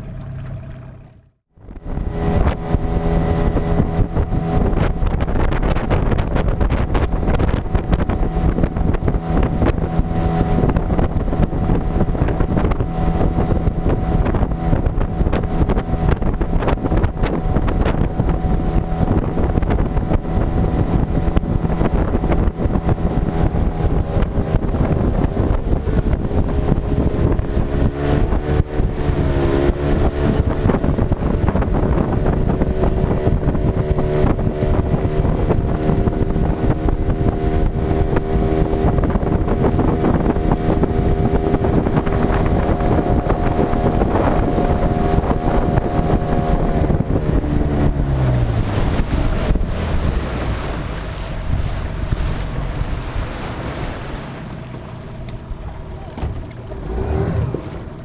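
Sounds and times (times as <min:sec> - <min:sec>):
outboard motor at speed: 0:00.0 - 0:58.0
water spraying off hull: 0:00.0 - 0:58.0
wind on microphone: 0:00.0 - 0:58.0.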